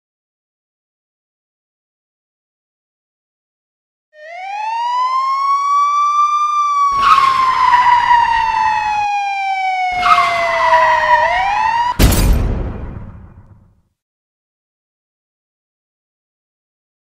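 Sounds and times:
siren wailing: 0:04.2 - 0:12.0
loud bang: 0:11.9 - 0:13.7.

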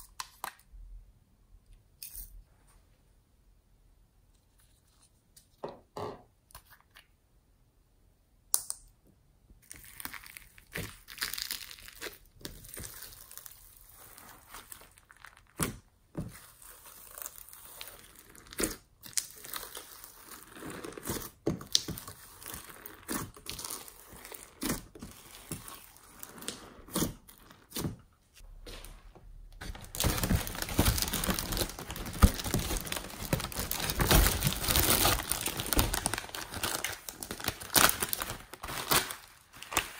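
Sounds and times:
hands squishing sticky slime: 0:09.6 - 0:28.0
foil balloon crinkling: 0:29.6 - 0:39.9.

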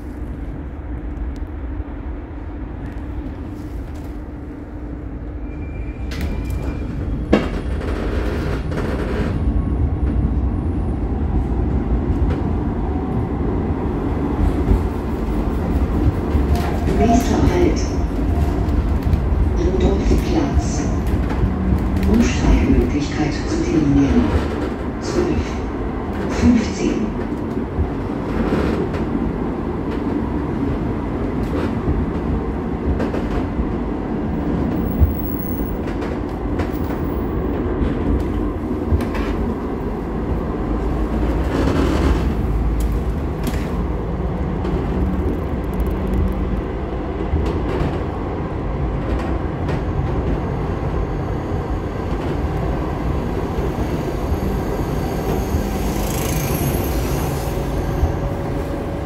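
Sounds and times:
rumble of wheels and motors: 0:00.0 - 0:25.0, 0:27.2 - 0:59.0
rail clacks: 0:14.4 - 0:29.1, 0:34.4 - 0:48.2.

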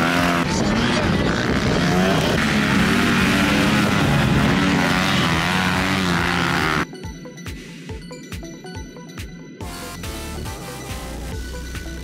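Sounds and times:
motocross bike engines revving: 0:00.0 - 0:06.9.

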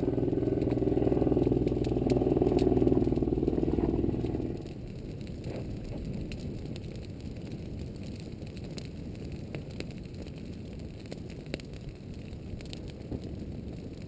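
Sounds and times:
low rushing noise: 0:00.0 - 0:04.7
burning twigs crackling and popping: 0:00.0 - 0:14.0.

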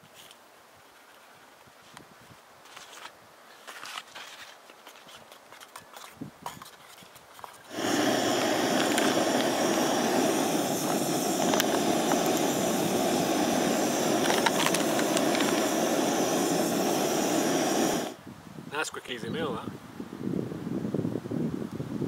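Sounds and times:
gas stove rushing hiss: 0:07.7 - 0:18.2.

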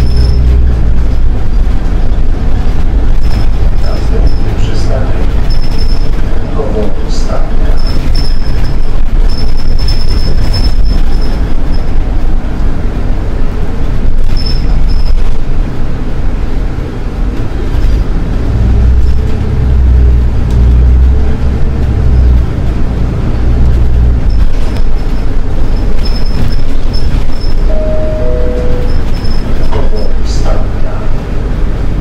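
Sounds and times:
thin high squeal: 0:00.0 - 0:00.5, 0:26.0 - 0:30.1
bus engine and road rumble: 0:00.0 - 0:32.0.

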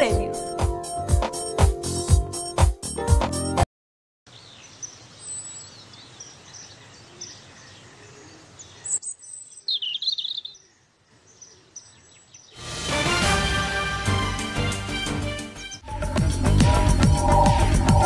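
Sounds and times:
small birds chirping: 0:04.3 - 0:12.6
outdoor background hiss: 0:04.3 - 0:14.6
bird warbling call: 0:06.7 - 0:10.8.

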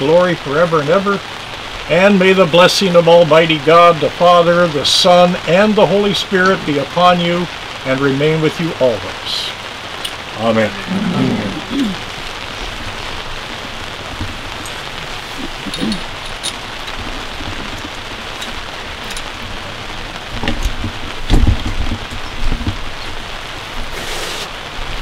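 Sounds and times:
steady rain hiss: 0:00.0 - 0:25.0
low thumps and rumbles: 0:11.5 - 0:23.3.

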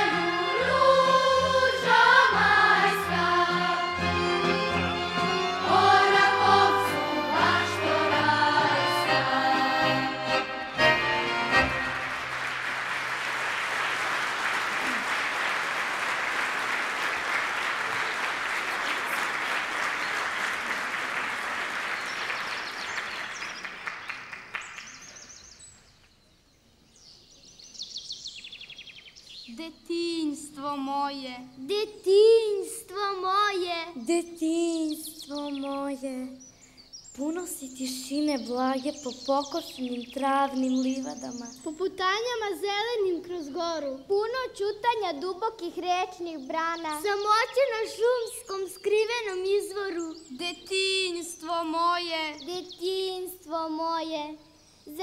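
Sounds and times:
choir singing: 0:00.0 - 0:12.1
audience applauding: 0:11.1 - 0:25.1.

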